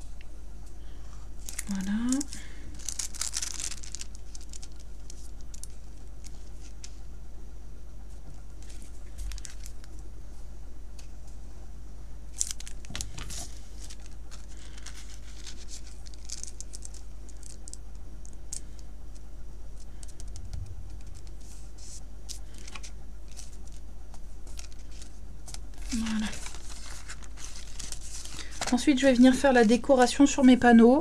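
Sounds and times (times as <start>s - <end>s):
steady low hum: 0.0s - 31.0s
paper rustling and crinkling: 1.4s - 7.0s, 8.2s - 10.0s, 12.3s - 17.8s, 19.8s - 30.4s.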